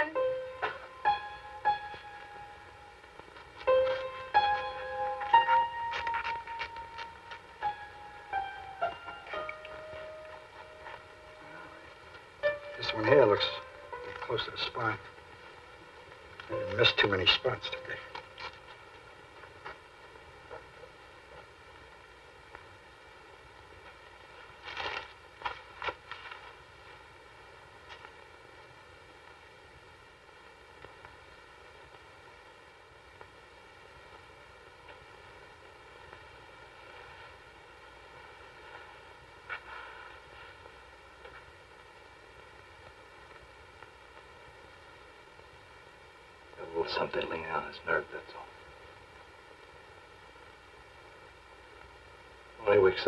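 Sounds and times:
faint steady hum: 0.0 - 53.0
soundtrack hiss: 0.0 - 53.0
rustling and scraping: 3.3 - 7.5, 24.2 - 26.6, 38.6 - 41.6.

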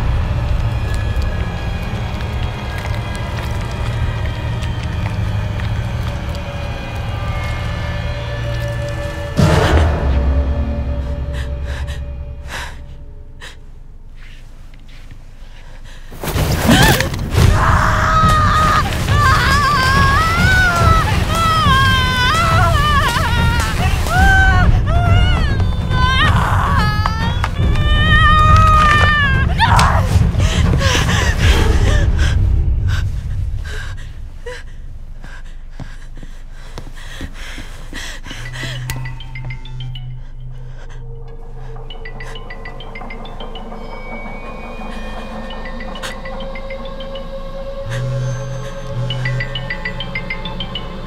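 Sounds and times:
loud low drone: 0.0 - 14.0
low droning rumble: 17.4 - 35.8.

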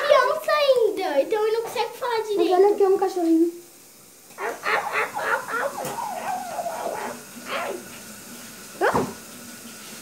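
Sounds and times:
child imitating puppy yips: 4.4 - 7.8.

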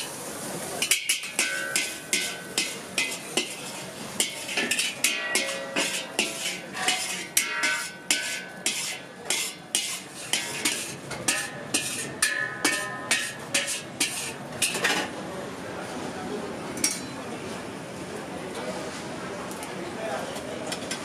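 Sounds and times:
metal ladle scraping a steel wok: 0.8 - 15.1.

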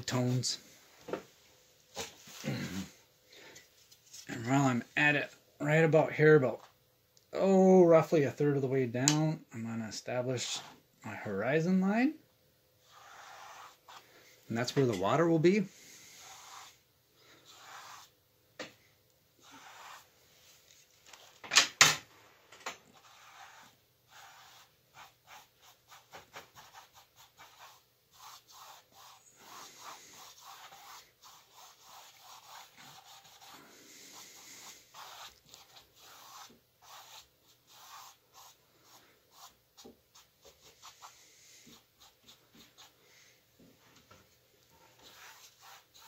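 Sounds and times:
paintbrush scrubbing on canvas: 12.8 - 14.6, 15.7 - 18.1, 19.4 - 21.4, 22.9 - 43.2, 44.8 - 46.0.

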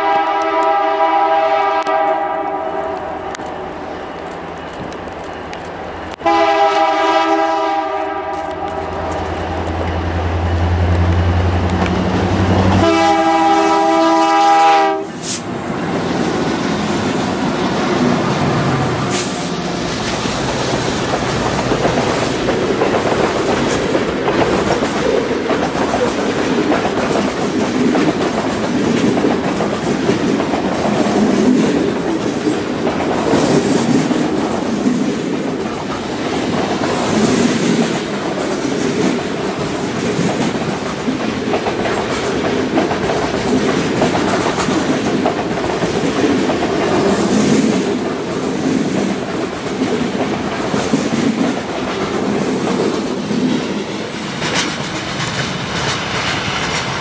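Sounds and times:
freight train rumbling past: 0.0 - 57.0
wheels clacking over rail joints: 20.0 - 57.0.

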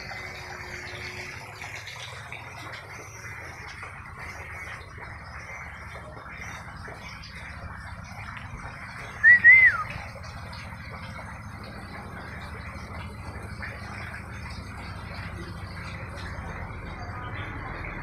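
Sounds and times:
whistled call: 9.2 - 10.0.

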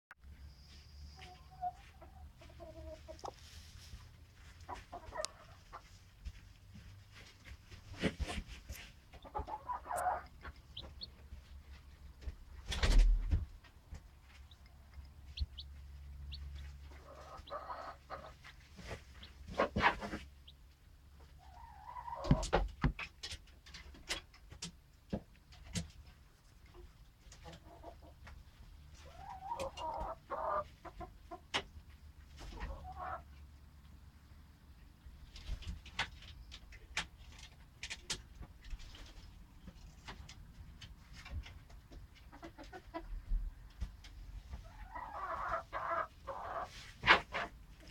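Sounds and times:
soft hen murmur: 0.6 - 6.1, 9.1 - 11.6, 14.4 - 20.6, 21.2 - 22.6, 28.9 - 31.4, 32.4 - 33.5, 44.4 - 47.9
chick pecking in feed bowl: 4.7 - 6.0, 7.1 - 20.6, 29.0 - 31.7, 35.3 - 47.9.

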